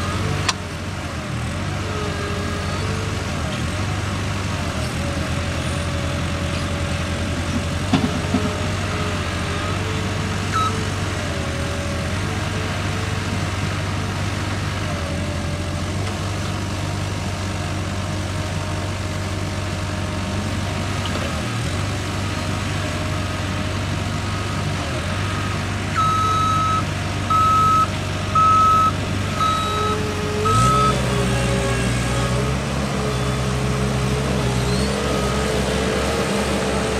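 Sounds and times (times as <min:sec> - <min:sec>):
diesel engine running: 0:00.0 - 0:36.9
reversing alarm beeps: 0:10.6 - 0:10.8, 0:26.0 - 0:29.9.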